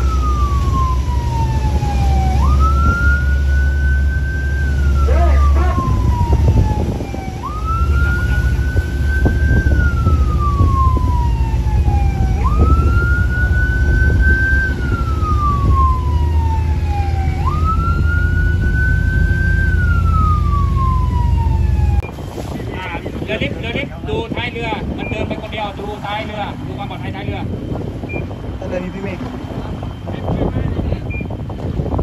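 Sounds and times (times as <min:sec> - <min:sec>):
siren wailing: 0:00.0 - 0:22.1
boat engine rumbling: 0:00.0 - 0:32.0
water rushing past hull: 0:00.0 - 0:32.0.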